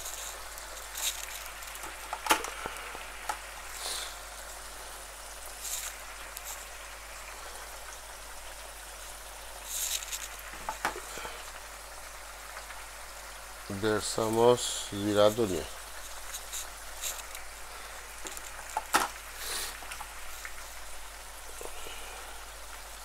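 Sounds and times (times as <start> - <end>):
onions sizzling in hot oil: 0.0 - 23.0
oil popping and spitting: 9.6 - 11.6.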